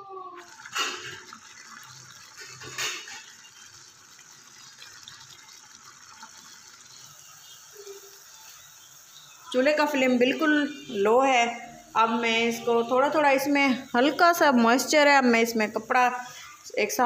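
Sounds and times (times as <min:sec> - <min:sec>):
water boiling and bubbling: 0:00.2 - 0:10.0.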